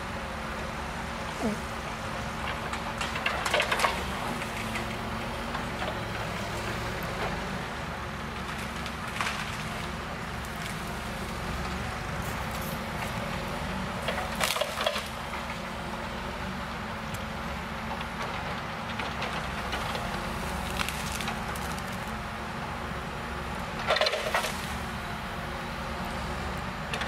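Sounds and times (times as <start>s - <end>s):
wood chipper humming: 0.0s - 27.0s
wood cracking and splintering: 14.0s - 15.2s, 18.9s - 22.2s, 23.8s - 24.8s.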